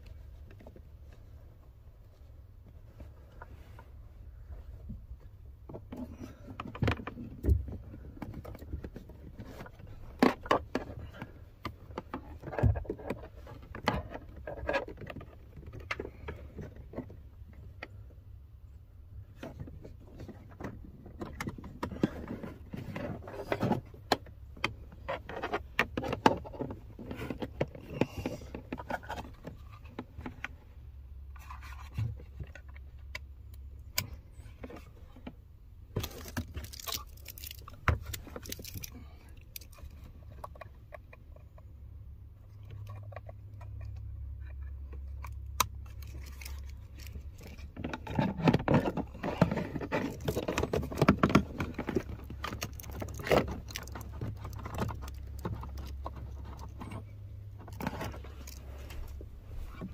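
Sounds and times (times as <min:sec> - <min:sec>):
low steady hum: 0:00.0 - 0:59.9
plastic connectors clicking: 0:36.0 - 0:41.1.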